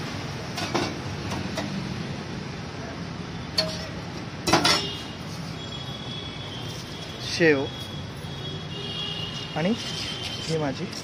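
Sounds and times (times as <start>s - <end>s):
metal utensils clinking: 3.5s - 4.9s.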